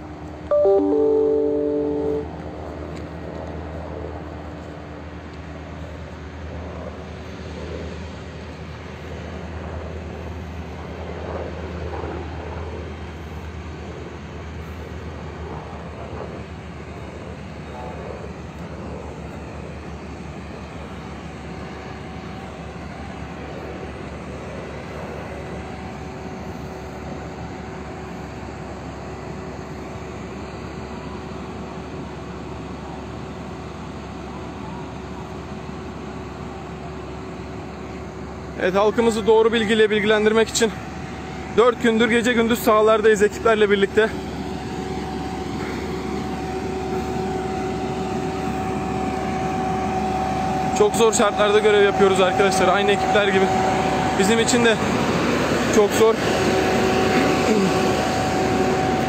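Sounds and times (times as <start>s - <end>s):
aircraft engine droning overhead: 0.0s - 59.0s
steady tone: 0.5s - 2.4s.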